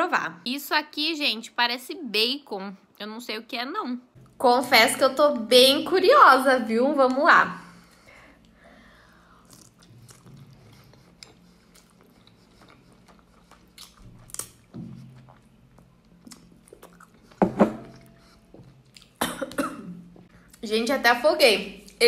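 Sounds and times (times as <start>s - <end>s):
slurping and chewing noodles: 9.4s - 17.4s
person coughing: 19.2s - 20.0s.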